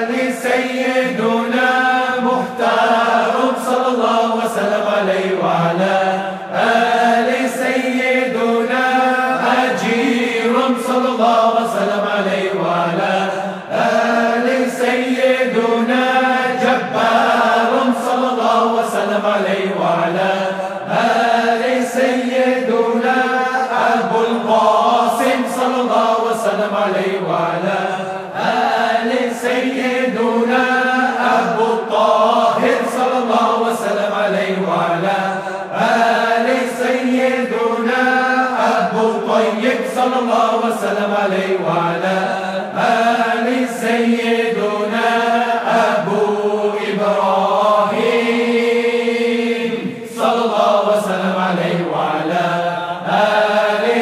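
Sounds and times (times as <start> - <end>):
group of voices chanting: 0.0 - 54.0.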